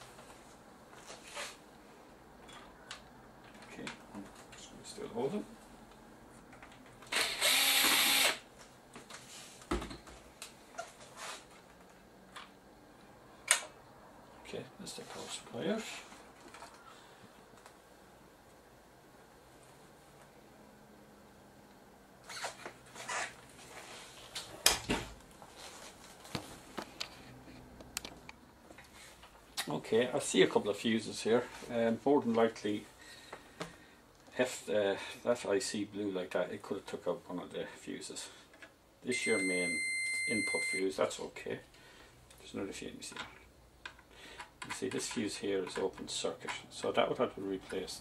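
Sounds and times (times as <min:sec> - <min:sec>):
electric screwdriver whirring: 0:07.1 - 0:08.4.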